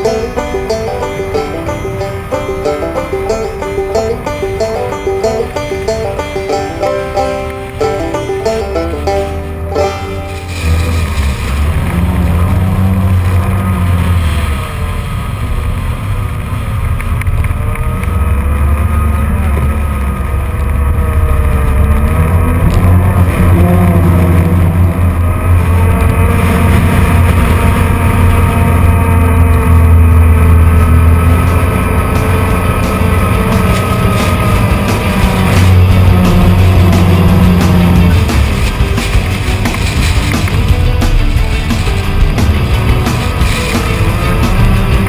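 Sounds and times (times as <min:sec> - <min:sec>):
off-road vehicle engine: 0:00.0 - 0:45.0
wind rumble on microphone: 0:10.8 - 0:43.6.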